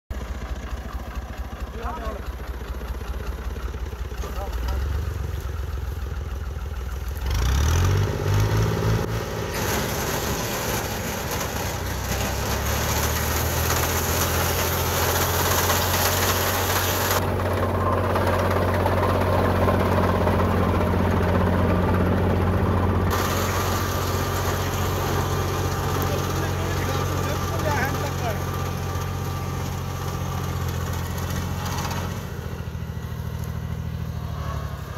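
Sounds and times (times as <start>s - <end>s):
tractor engine revving: 0.1s - 34.9s
reaper cutting crop hiss: 9.2s - 17.2s, 23.1s - 32.4s.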